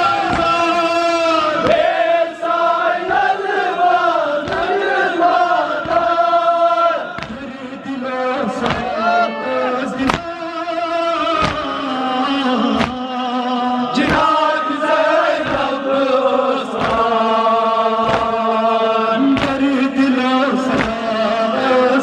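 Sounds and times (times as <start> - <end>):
crowd of men chanting: 0.0 - 22.0
chest-beating slaps: 0.2 - 0.6, 4.4 - 4.7, 7.1 - 7.5, 8.6 - 8.9, 10.0 - 10.3, 11.4 - 11.8, 12.7 - 13.1, 14.0 - 14.4, 15.4 - 15.8, 16.7 - 17.2, 18.0 - 18.4, 19.3 - 19.8, 20.6 - 21.1.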